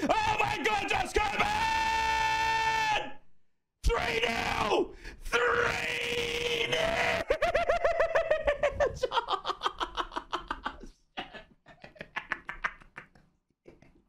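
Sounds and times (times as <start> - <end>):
man laughing hard: 6.8 - 13.2.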